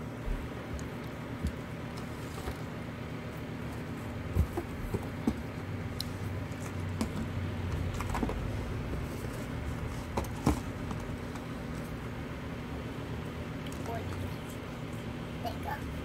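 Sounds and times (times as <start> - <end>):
low background hum: 0.0 - 16.0
cardboard boxes tapping and knocking: 3.8 - 5.7, 6.5 - 8.6, 9.2 - 11.8.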